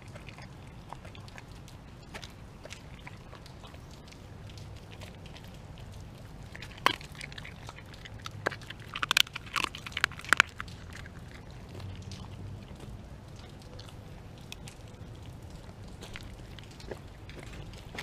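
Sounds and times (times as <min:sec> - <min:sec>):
dog chewing with bone crunches: 0:00.0 - 0:18.0.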